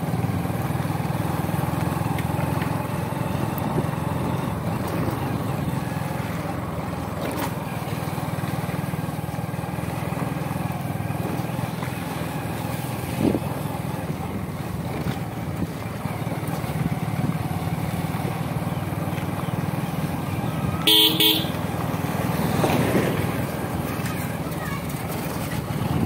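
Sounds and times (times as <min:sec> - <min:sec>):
motorcycle engine running: 0:00.0 - 0:26.0
vehicle horn honking: 0:20.8 - 0:21.7.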